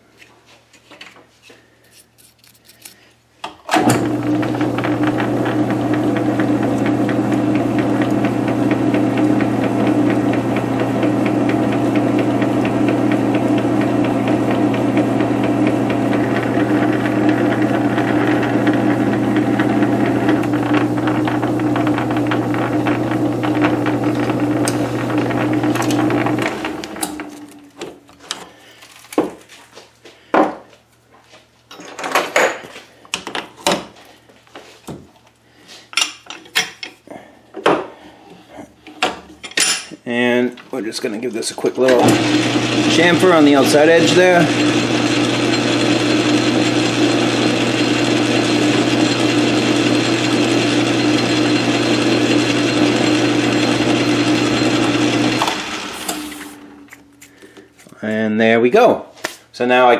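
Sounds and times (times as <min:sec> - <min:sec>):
lathe humming: 0:03.8 - 0:27.9, 0:41.8 - 0:56.9.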